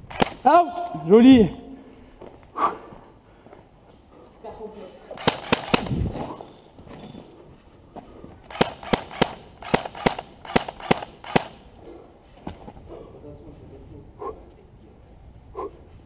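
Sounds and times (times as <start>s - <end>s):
airsoft gun single shots: 0.1s - 0.6s, 5.2s - 6.1s, 8.5s - 11.7s.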